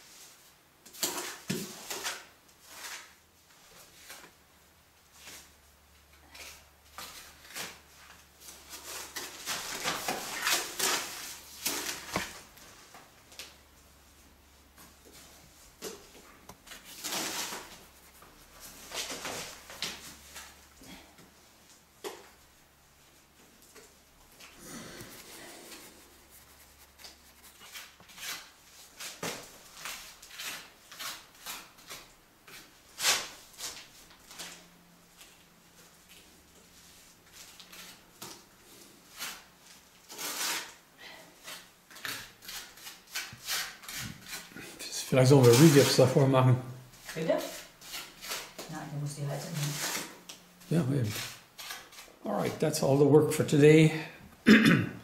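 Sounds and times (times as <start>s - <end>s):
clay scraping and rubbing: 6.2s - 21.4s, 22.0s - 34.5s, 36.8s - 46.3s, 47.0s - 48.7s, 49.4s - 52.6s
trowel smoothing clay: 25.0s - 29.2s, 41.4s - 46.2s.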